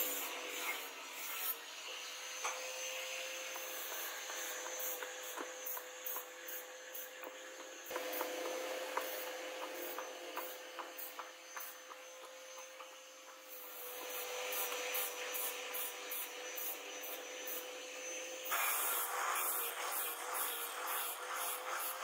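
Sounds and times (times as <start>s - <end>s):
hand tools scraping wood: 3.5s - 17.6s.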